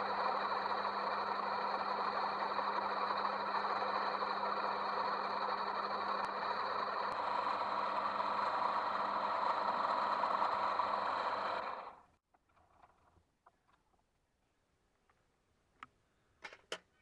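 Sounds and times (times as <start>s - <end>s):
metal lathe motor humming: 0.0s - 12.1s.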